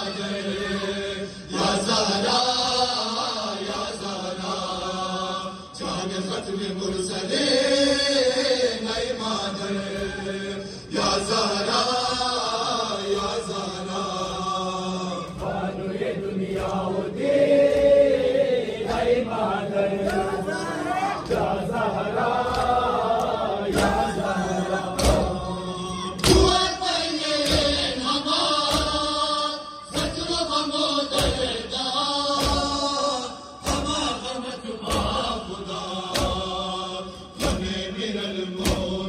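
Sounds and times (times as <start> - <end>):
men chanting a lament: 0.0 - 39.0
chest-beating slaps in unison: 5.8 - 20.6, 21.2 - 39.0.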